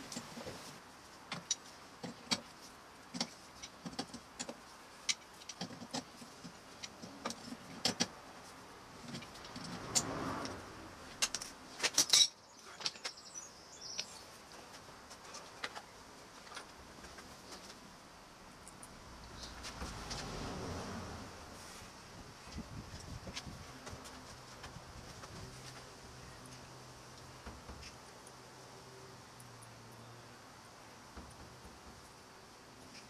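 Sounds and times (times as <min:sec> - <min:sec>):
hand tool clicking and scraping metal: 0:01.3 - 0:08.2, 0:09.0 - 0:10.6, 0:11.2 - 0:13.2.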